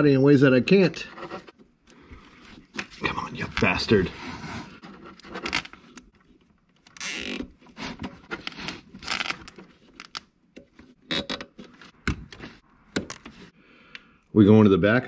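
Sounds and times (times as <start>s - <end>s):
hands rustling cord and plastic: 4.8s - 13.6s.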